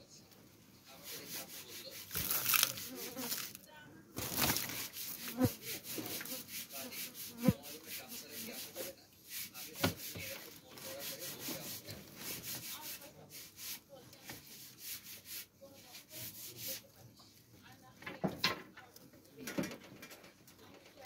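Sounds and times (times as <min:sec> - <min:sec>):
doves scratching at grit: 0:00.9 - 0:03.6, 0:04.3 - 0:16.9.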